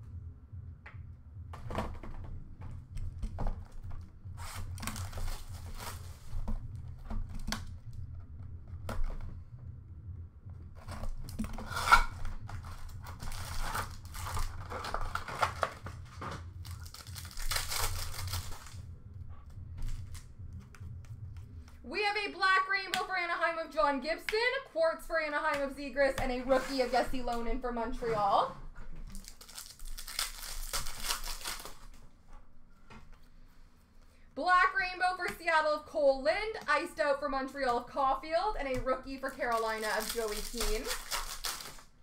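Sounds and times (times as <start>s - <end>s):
foil packs tearing: 4.4s - 6.3s, 11.3s - 18.8s, 29.1s - 32.0s, 39.1s - 42.0s
wrappers crinkling: 4.4s - 6.6s, 10.8s - 18.8s, 29.0s - 32.0s, 39.0s - 42.0s.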